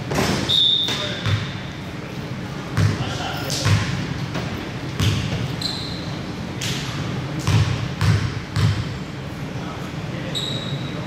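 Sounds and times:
basketball bouncing: 1.0 - 1.5, 2.8 - 5.5, 7.4 - 9.0
short high squeak: 5.6 - 6.1, 10.3 - 11.0.

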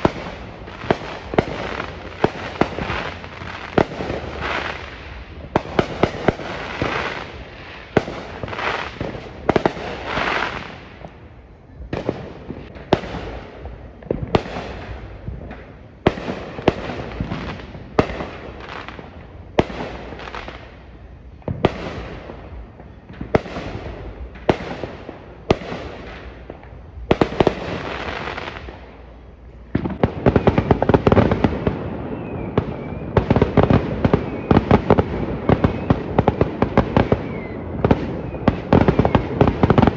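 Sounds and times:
fireworks bangs with crackling: 0.0 - 39.9.

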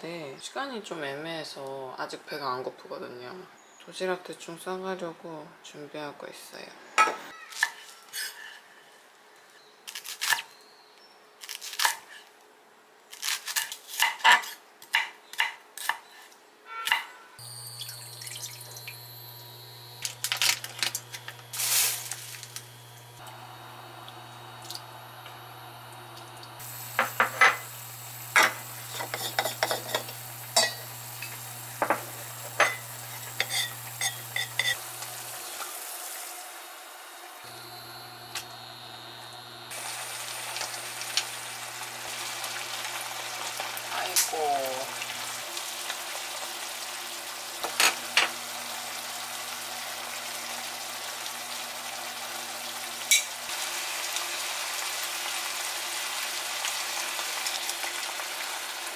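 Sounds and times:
water bubbling in frying pan: 17.4 - 19.6, 39.6 - 47.5
electric hob humming: 17.4 - 58.9
utensils and dishes clinking: 26.9 - 27.7, 28.3 - 34.8, 53.1 - 53.4.

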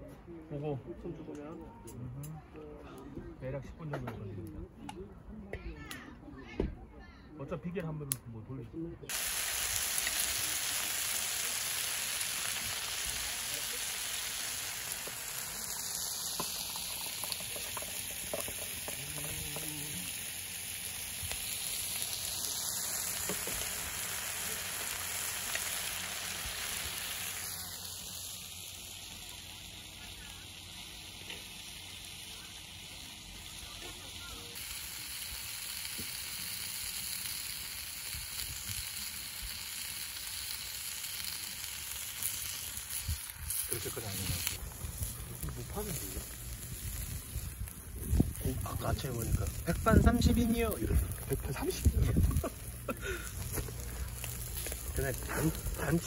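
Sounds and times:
pork sizzling in a pan: 9.1 - 56.0.

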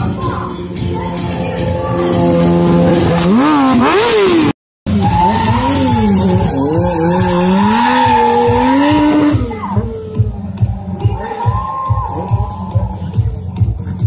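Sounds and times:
motorcycle engine revving high: 1.0 - 11.0.

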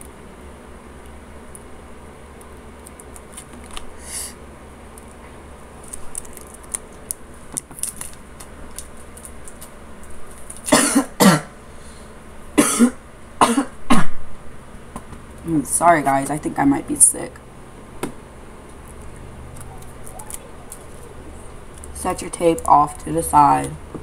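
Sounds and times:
person coughing: 10.7 - 11.5, 12.6 - 14.2.

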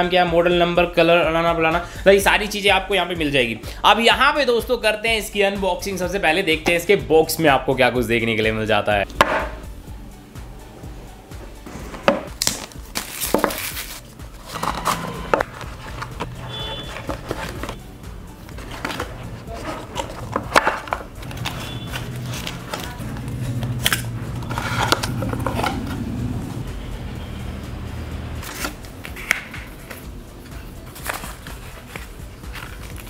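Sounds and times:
background music: 0.0 - 33.0
plastic wrap crinkling: 12.4 - 17.8, 18.6 - 25.4.

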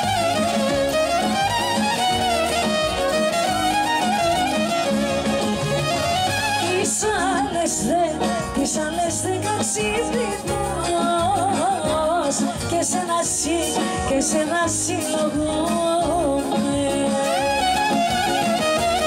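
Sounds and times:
folk band through loudspeakers: 0.0 - 19.0
woman singing: 6.4 - 18.7.

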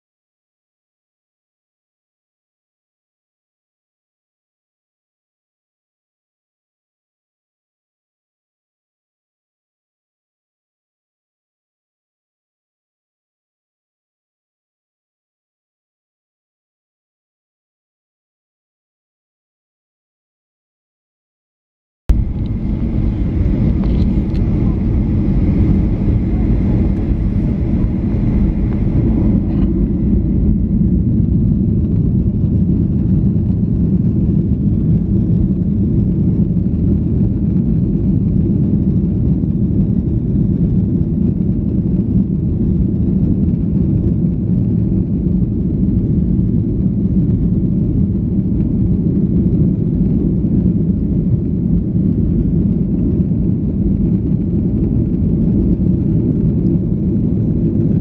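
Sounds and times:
airplane cabin rumble: 22.1 - 58.0.

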